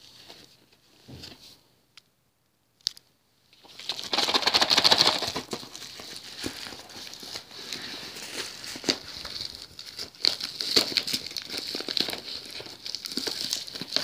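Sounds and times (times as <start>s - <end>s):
envelope tearing: 3.6s - 14.0s
paper mailer rustling: 3.7s - 14.0s.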